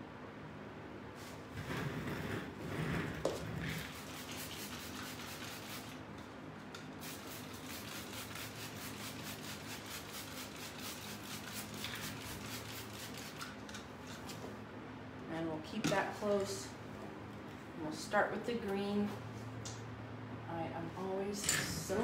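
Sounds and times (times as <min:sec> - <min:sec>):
spray bottle squirting water: 0:03.8 - 0:06.0, 0:06.7 - 0:14.3.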